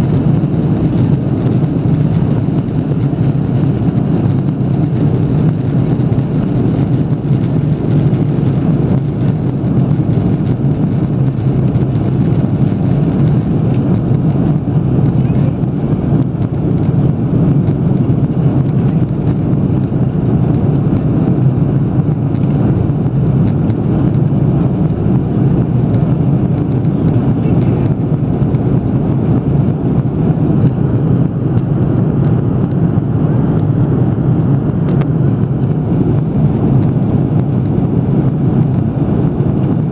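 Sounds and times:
jet engines and airflow rumble: 0.0s - 39.9s.

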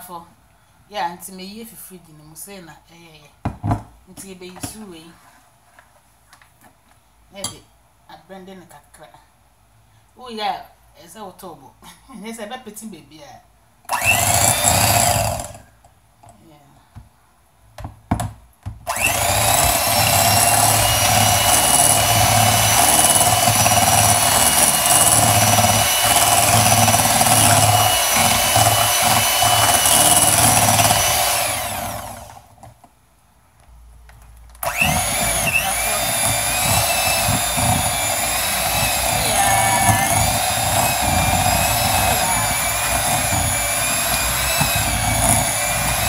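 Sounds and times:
electric hand mixer running: 13.9s - 15.6s, 18.9s - 32.5s, 34.6s - 46.0s.

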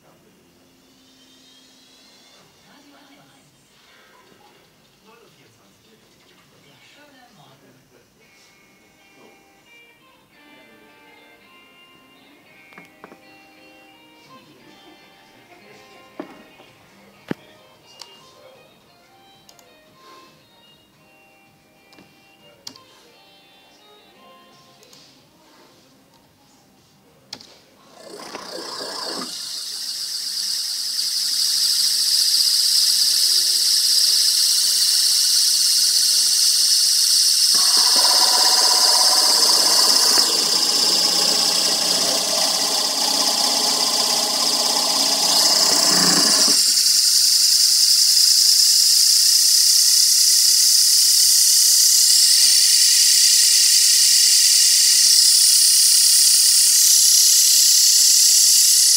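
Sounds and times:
electric motor whine: 27.9s - 58.9s.

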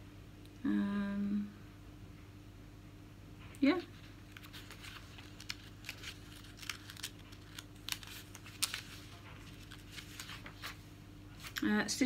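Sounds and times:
magazine pages rustling: 3.9s - 11.7s.

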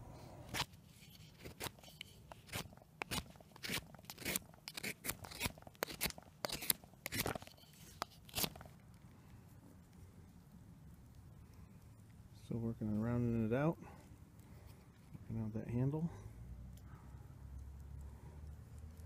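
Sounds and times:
knife blade shaving wood: 0.5s - 8.7s.

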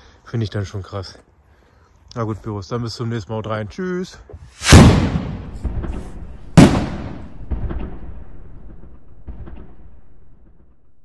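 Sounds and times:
firework rocket bang: 4.5s - 10.8s.

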